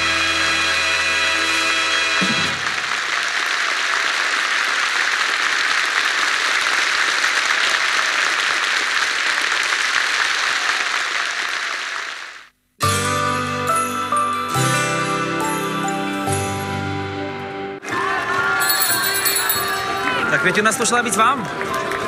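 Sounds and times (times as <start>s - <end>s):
audience applauding: 2.3s - 12.5s, 17.8s - 22.0s.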